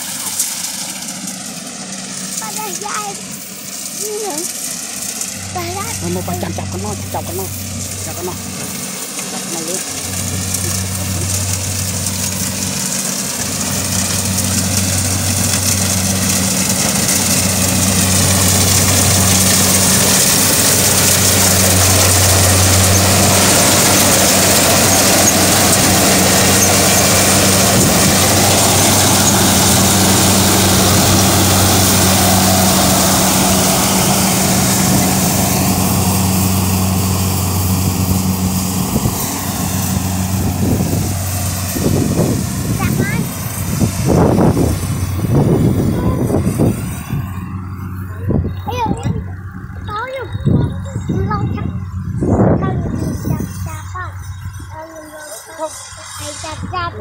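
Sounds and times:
diesel engine hum: 0.0s - 57.0s
threshing machinery rushing: 0.0s - 57.0s.

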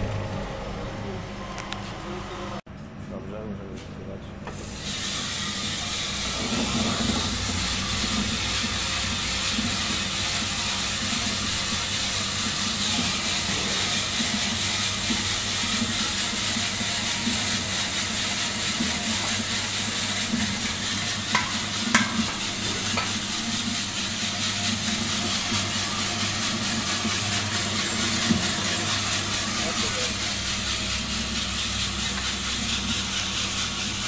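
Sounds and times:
coffee roaster rushing noise: 0.0s - 2.6s, 4.4s - 34.0s
low hum: 5.8s - 12.1s.

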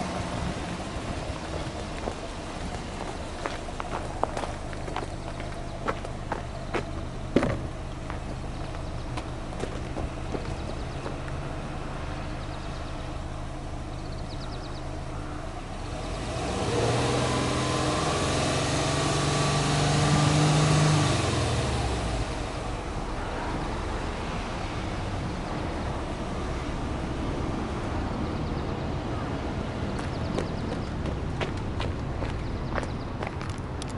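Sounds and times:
car engine revving: 15.5s - 25.3s.

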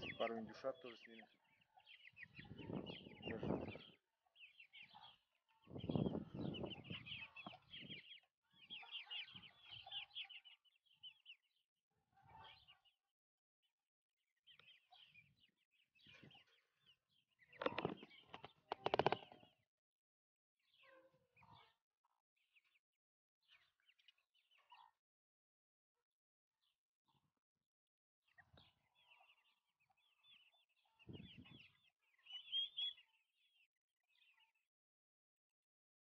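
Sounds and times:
chicks peeping: 0.0s - 11.6s, 12.2s - 13.1s, 14.4s - 19.7s, 20.6s - 22.8s, 23.4s - 25.0s, 28.3s - 34.4s.

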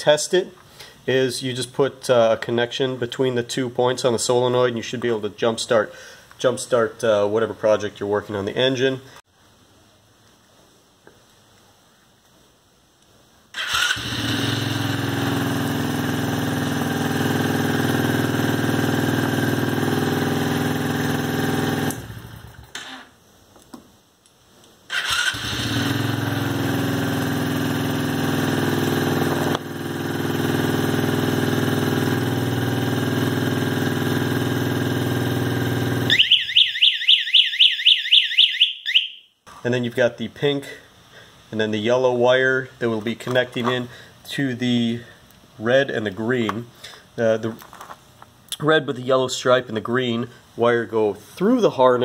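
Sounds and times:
atv engine idling: 14.1s - 22.6s, 25.5s - 36.3s
rapid warbling alarm chirp: 36.1s - 39.3s.

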